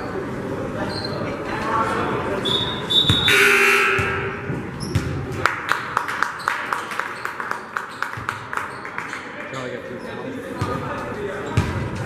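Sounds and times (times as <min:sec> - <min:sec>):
background murmur: 0:00.0 - 0:12.0.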